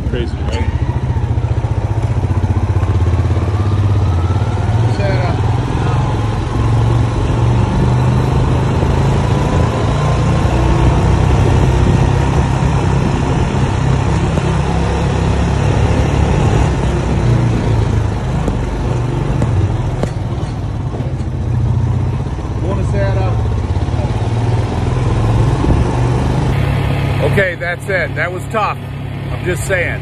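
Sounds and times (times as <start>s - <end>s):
atv engine running: 0.0s - 30.0s
road noise: 0.0s - 30.0s.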